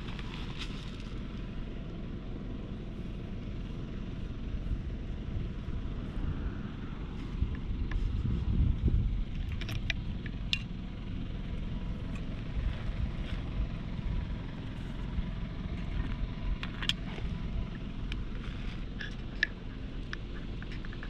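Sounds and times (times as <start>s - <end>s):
faint clicks and rustles: 0.0s - 1.5s, 14.7s - 21.0s
low outdoor rumble: 0.0s - 21.0s.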